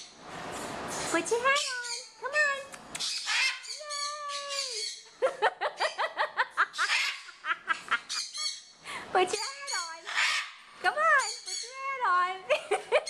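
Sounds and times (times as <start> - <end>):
macaw calling: 3.0 - 5.1, 6.7 - 7.5, 8.1 - 8.7, 9.3 - 11.9.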